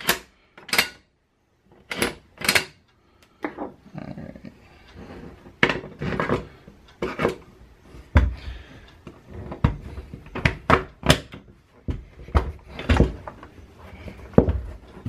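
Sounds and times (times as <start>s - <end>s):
metallic clicks and knocks: 0.0s - 1.1s, 1.8s - 2.8s.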